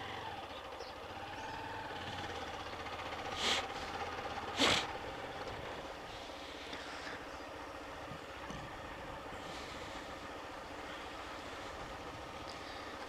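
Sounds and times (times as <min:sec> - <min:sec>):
motorcycle engine running: 0:00.0 - 0:13.0
short hissing bursts: 0:03.3 - 0:03.8.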